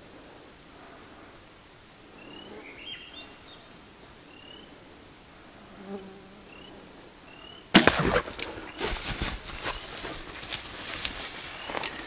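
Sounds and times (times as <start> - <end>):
insect buzzing past: 4.2 - 12.0.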